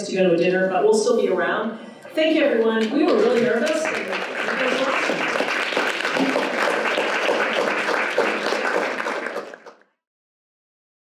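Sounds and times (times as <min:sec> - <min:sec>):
crowd applauding: 0:02.5 - 0:09.9.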